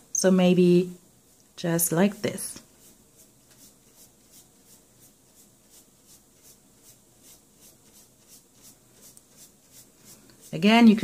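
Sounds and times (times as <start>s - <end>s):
paintbrush dabbing on paper: 2.6s - 11.0s.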